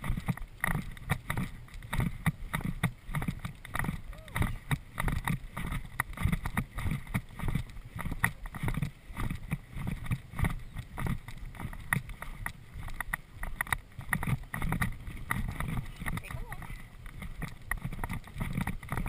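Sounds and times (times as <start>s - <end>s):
hoofbeats of horse cantering on grass: 0.0s - 19.0s
tack clicking and rattling: 0.0s - 19.0s
wind noise on microphone: 0.0s - 19.0s.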